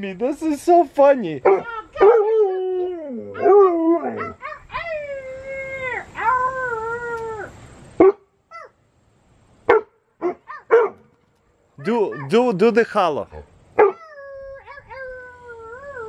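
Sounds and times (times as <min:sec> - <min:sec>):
dog howling: 0:01.4 - 0:07.5, 0:13.8 - 0:16.0.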